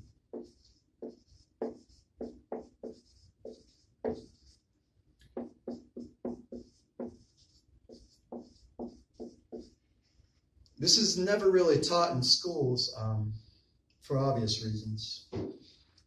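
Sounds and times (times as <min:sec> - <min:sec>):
marker squeaking on whiteboard: 0:00.0 - 0:10.4.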